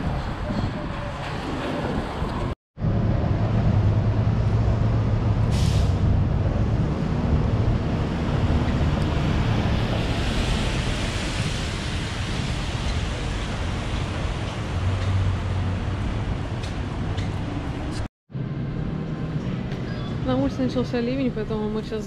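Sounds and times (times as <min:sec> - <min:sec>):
street traffic: 0:00.0 - 0:22.0
large vehicle engine humming: 0:02.8 - 0:11.3
air brakes hissing: 0:05.4 - 0:06.1.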